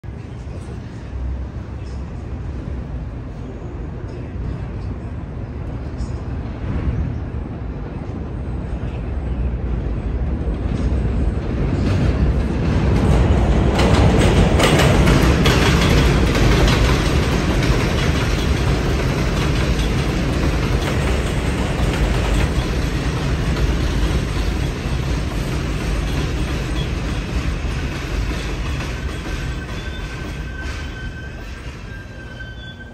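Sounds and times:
subway train running on rails: 0.0 - 32.9.

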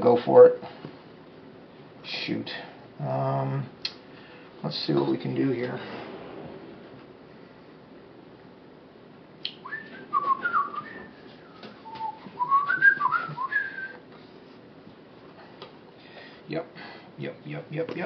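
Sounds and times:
man whistling sliding notes: 9.5 - 14.0.

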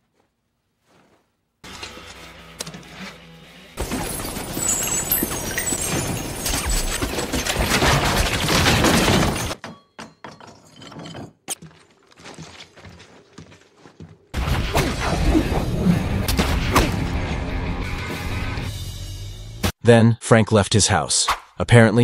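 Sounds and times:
loud crashing impacts: 3.8 - 9.6
glass shattering: 3.8 - 11.5
debris breaking: 3.8 - 13.1.

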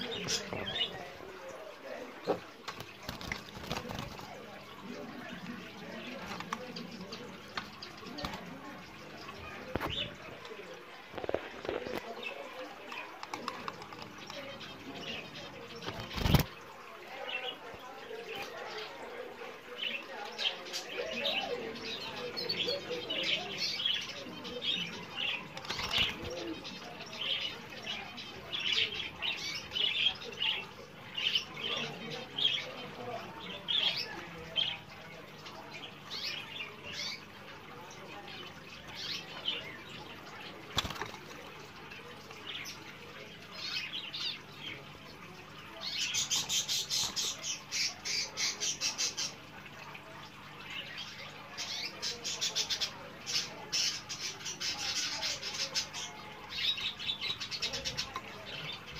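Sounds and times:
canary chirping and trilling: 0.0 - 58.9
wing flutters: 2.6 - 4.5, 15.8 - 16.6, 40.6 - 41.5.

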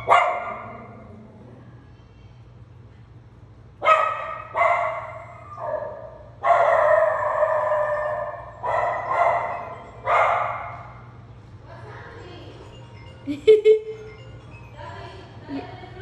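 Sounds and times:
small dog barking: 0.0 - 1.0, 3.8 - 10.8.

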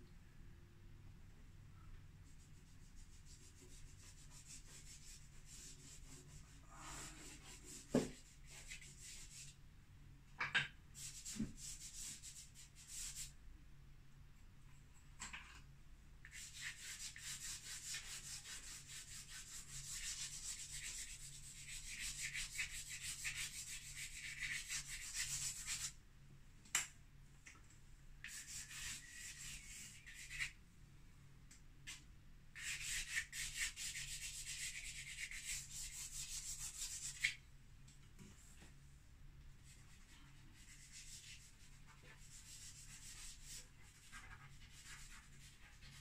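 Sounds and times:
chalk scratching on drawing board: 2.3 - 9.6, 11.0 - 13.4, 16.2 - 26.0, 28.2 - 30.6, 32.6 - 37.4, 39.6 - 46.0.

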